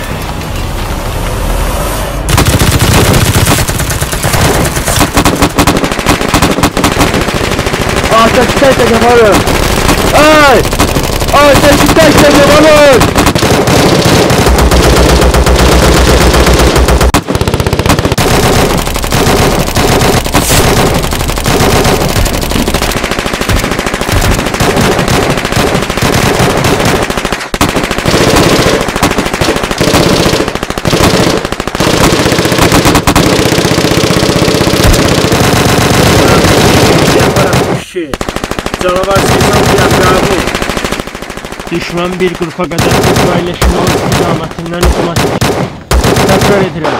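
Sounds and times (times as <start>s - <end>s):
automatic gunfire: 2.3s - 46.9s.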